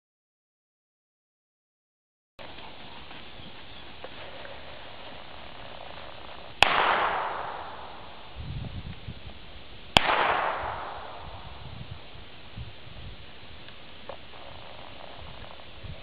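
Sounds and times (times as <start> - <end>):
gunshots with echo: 6.5 - 8.4, 10.0 - 11.6.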